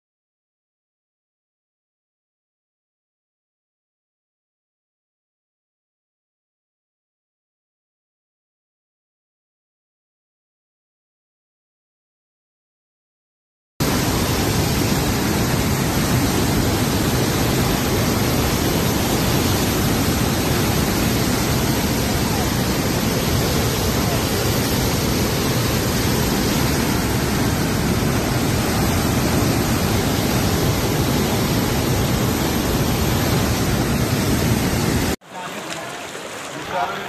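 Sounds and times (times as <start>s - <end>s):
flooded river rushing: 13.8s - 37.0s.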